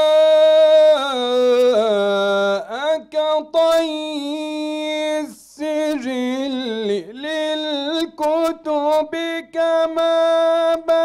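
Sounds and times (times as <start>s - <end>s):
man reciting melodically: 0.0s - 11.0s.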